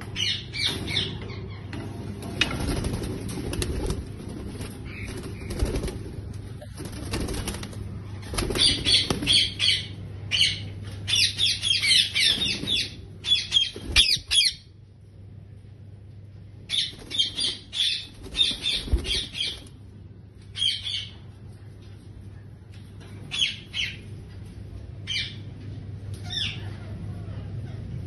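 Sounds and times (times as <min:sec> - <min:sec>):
bird wings flapping: 0:02.2 - 0:09.4, 0:18.2 - 0:19.7
parakeets squawking: 0:08.0 - 0:14.7, 0:16.7 - 0:19.7.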